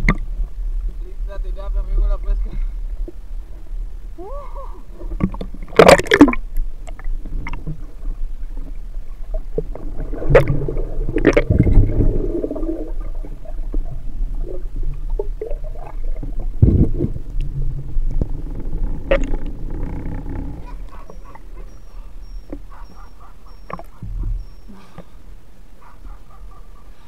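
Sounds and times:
underwater gurgling and bubbling: 4.9s - 22.8s.

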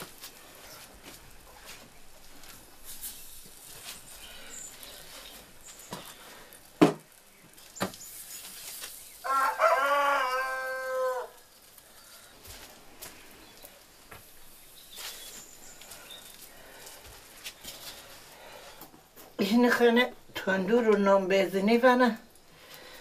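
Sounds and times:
rooster crowing: 9.2s - 11.5s.

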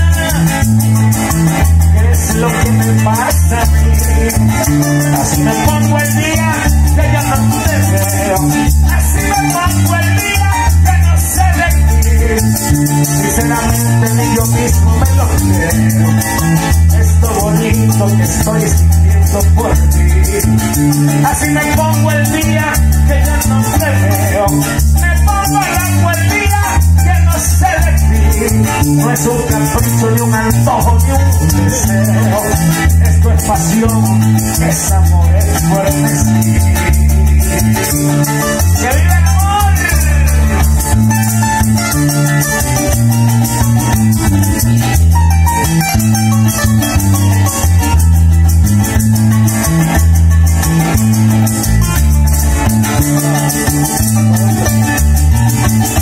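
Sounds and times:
man singing through microphone: 0.0s - 1.0s, 1.6s - 40.9s
cuatro: 0.0s - 56.0s
deep bass line: 0.0s - 56.0s
maracas: 0.0s - 56.0s.

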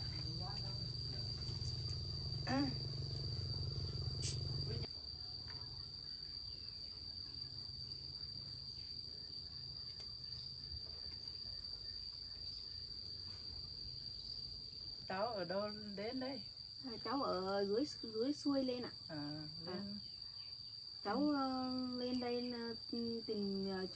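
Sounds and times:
low hum: 0.0s - 4.9s
insects chirring: 0.0s - 23.9s.

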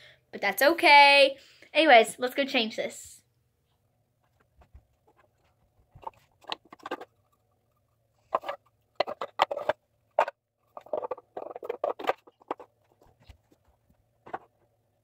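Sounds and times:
doll being handled rustling: 3.6s - 14.8s.

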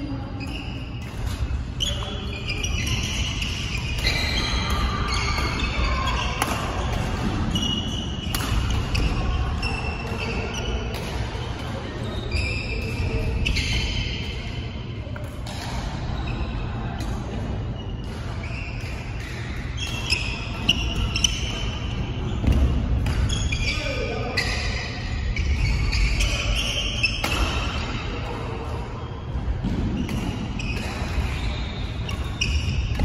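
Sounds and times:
low hum of hall: 0.0s - 33.0s
shoes squeaking on court floor: 0.4s - 11.0s, 11.8s - 14.7s, 17.6s - 28.1s, 29.9s - 33.0s
racket hitting shuttlecock: 2.7s - 11.4s, 22.4s - 23.3s, 25.5s - 28.2s, 29.6s - 33.0s.

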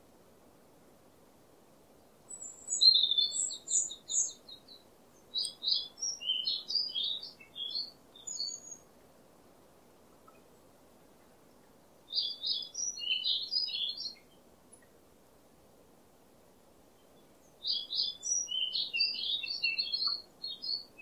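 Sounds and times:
faint steady background noise: 0.0s - 21.0s
songbird chirping and trilling: 2.0s - 9.0s, 11.2s - 15.0s, 17.0s - 21.0s.

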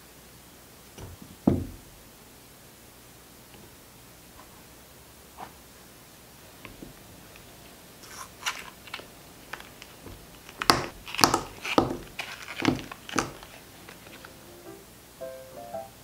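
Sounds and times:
silicone mould rustling: 0.8s - 2.4s, 3.4s - 15.2s
chocolates clacking onto a mat: 6.6s - 14.4s.

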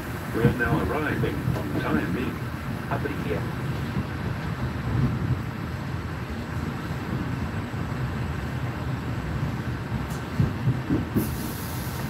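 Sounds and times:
train wheels rumbling on rails: 0.0s - 12.0s
high hiss: 11.2s - 12.0s.

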